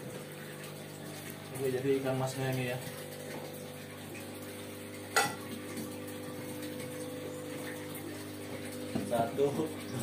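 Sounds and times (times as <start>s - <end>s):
aquarium pumps humming: 0.0s - 10.0s.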